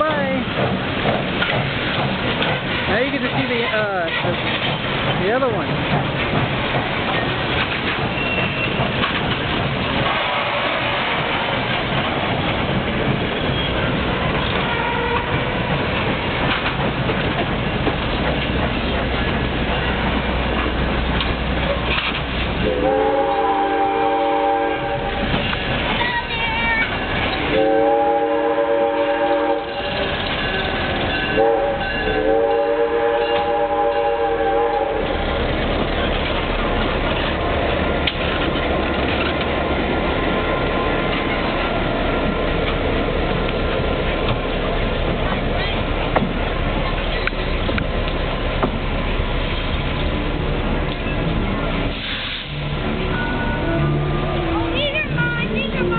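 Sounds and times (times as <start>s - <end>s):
train running along track: 0.0s - 55.9s
steam locomotive chord whistle: 22.6s - 25.2s, 27.5s - 29.8s, 31.4s - 35.0s.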